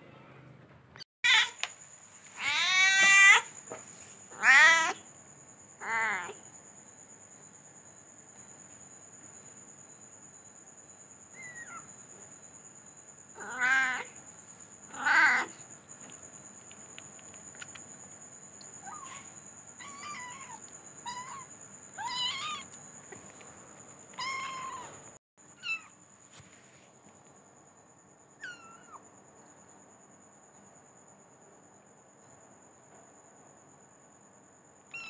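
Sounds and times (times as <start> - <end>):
cat meowing: 1.2 - 1.7, 2.4 - 3.5, 4.3 - 5.0, 5.8 - 6.4, 13.4 - 14.1, 14.9 - 15.6, 18.8 - 22.7, 24.2 - 25.0, 25.6 - 25.9
kittens meowing high-pitched: 1.2 - 1.7, 2.4 - 3.5, 4.3 - 5.0, 5.8 - 6.4, 13.4 - 14.1, 14.9 - 15.6, 18.8 - 22.7, 24.2 - 25.0, 25.6 - 25.9, 28.4 - 29.0.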